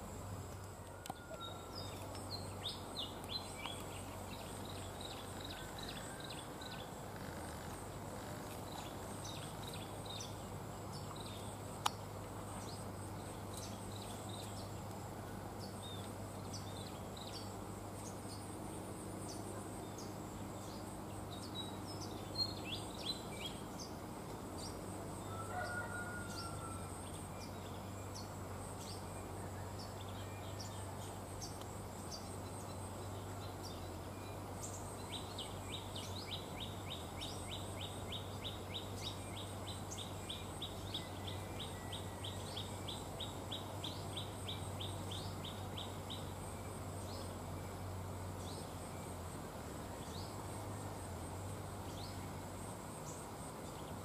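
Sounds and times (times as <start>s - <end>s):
faint low hum: 0.0s - 54.0s
small birds chirping: 0.6s - 24.8s.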